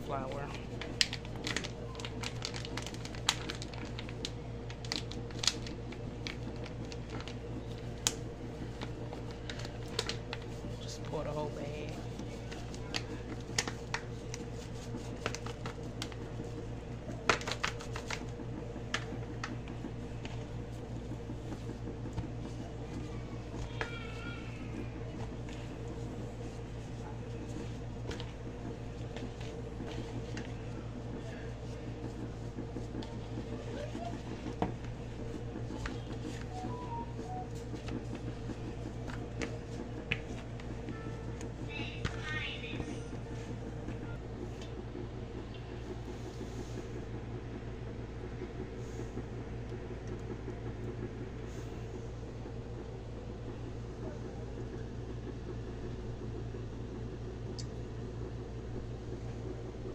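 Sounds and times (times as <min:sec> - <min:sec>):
steady low hum: 0:00.0 - 0:59.9
plastic bag crinkling: 0:00.6 - 0:08.1.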